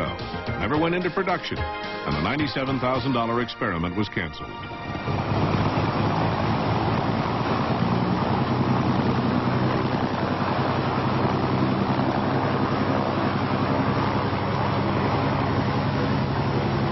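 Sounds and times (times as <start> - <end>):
low engine hum: 4.7 - 16.9
rush of engine and air: 4.8 - 16.9.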